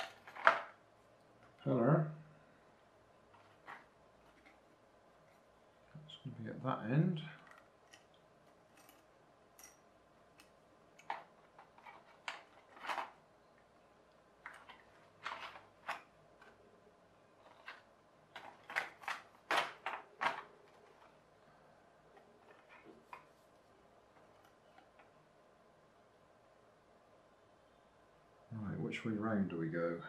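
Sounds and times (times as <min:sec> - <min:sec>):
rustles and clicks of plastic parts: 0:00.0 - 0:01.7, 0:03.2 - 0:05.6, 0:07.2 - 0:25.3.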